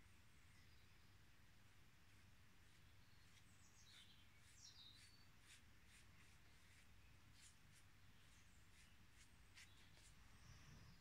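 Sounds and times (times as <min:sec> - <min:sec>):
faint bird chirps: 0:00.0 - 0:01.4, 0:02.1 - 0:11.0
brush strokes on paper: 0:02.0 - 0:11.0.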